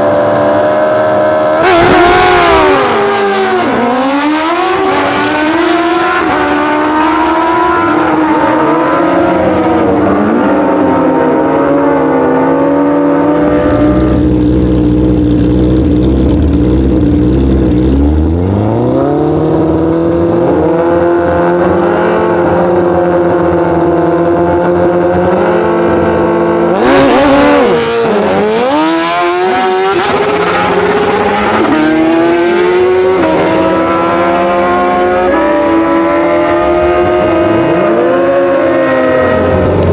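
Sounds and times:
superbike engines revving: 13.0s - 23.5s.

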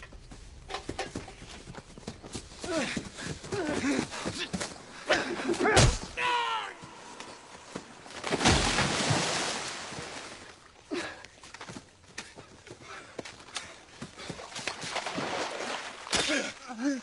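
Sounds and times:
person shouting: 5.6s - 6.9s.

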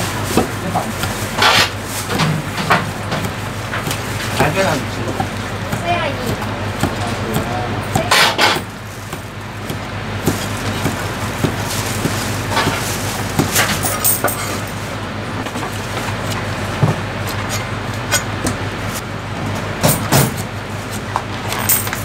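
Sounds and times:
steady background hum: 0.0s - 22.0s
cleaver chopping on wooden block: 2.7s - 13.7s.

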